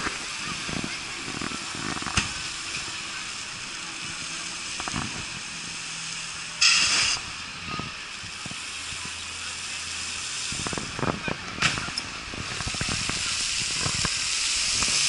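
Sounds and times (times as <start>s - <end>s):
steady background noise: 0.0s - 15.0s
sudden loud hiss: 0.0s - 15.0s.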